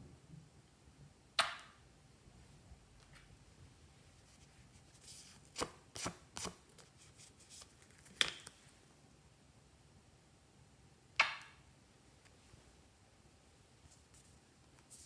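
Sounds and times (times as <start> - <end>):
soft rustle: 2.3 - 5.6, 6.7 - 8.9, 12.2 - 15.0.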